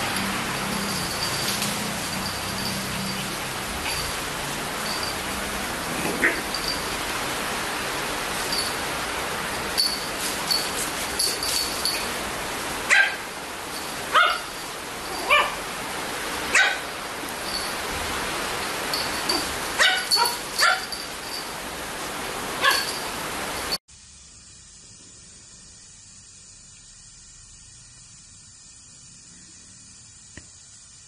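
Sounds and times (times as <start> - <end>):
steady hiss: 0.0 - 31.0
small dog yapping: 12.9 - 13.2, 14.1 - 14.5, 15.2 - 15.6, 19.3 - 20.9.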